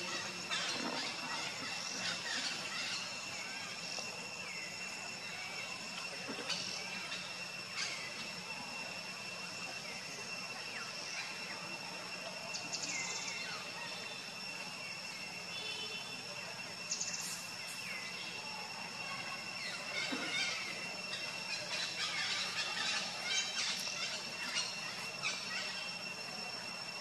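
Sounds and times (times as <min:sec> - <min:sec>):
high-pitched insect drone: 0:00.0 - 0:27.0
rapid chirping trills: 0:16.6 - 0:27.0.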